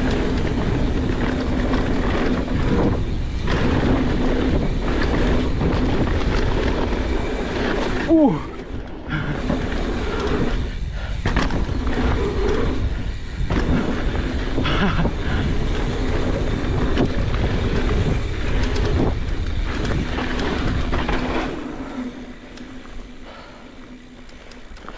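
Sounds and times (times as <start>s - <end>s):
bike clicks and rattles: 0.0s - 24.9s
rumble of tyres and wind: 0.0s - 24.9s.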